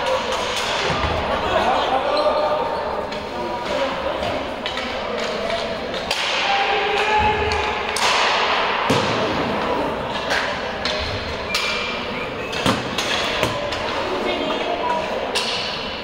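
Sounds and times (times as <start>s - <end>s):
thuds and knocks in sports hall: 6.2s - 9.8s.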